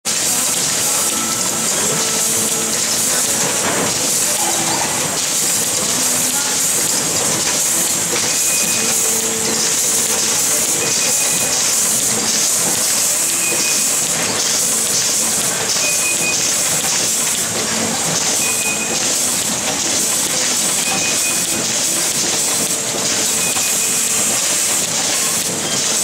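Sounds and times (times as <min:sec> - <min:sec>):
machinery loud steady hiss: 0:00.1 - 0:26.0.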